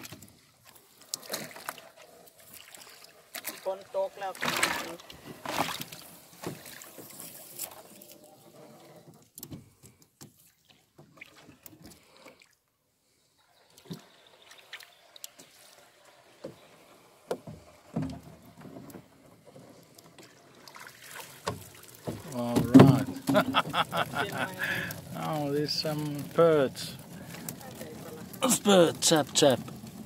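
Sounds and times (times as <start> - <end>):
water splashing: 0.0 - 9.1, 10.4 - 12.6, 13.4 - 30.0
knocks on metal rowboat: 22.1 - 23.7.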